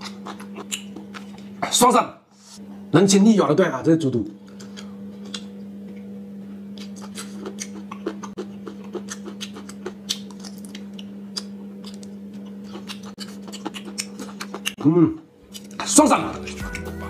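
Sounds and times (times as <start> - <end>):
person chewing crunchy food: 0.0 - 1.6, 4.5 - 5.6, 6.7 - 17.0.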